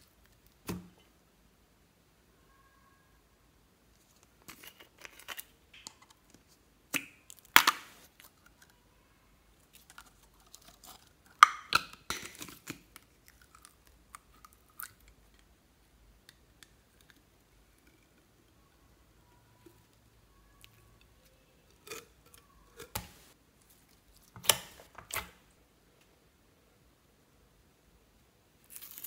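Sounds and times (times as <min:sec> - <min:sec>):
plastic tube crinkling: 0:09.6 - 0:15.4.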